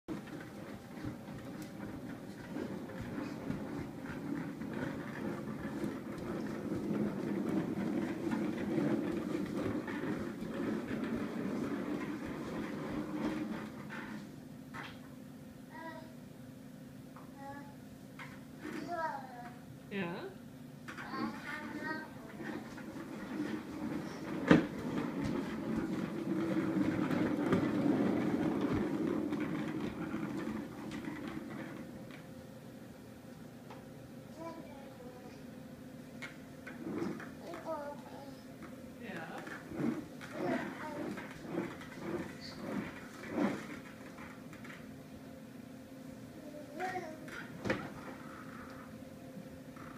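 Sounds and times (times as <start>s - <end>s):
toy wheels rolling on hardwood floor: 0.1s - 15.0s, 20.9s - 32.2s, 36.2s - 45.0s, 46.4s - 48.9s.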